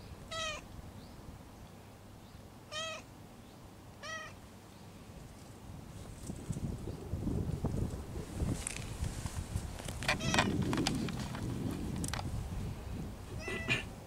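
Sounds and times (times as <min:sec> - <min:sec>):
cat meowing quietly: 0:02.7 - 0:03.1, 0:04.0 - 0:04.4, 0:13.4 - 0:13.9.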